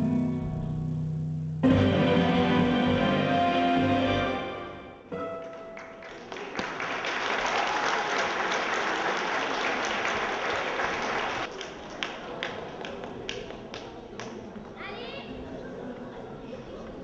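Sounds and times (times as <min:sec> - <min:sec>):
audience applauding: 0:05.4 - 0:14.4.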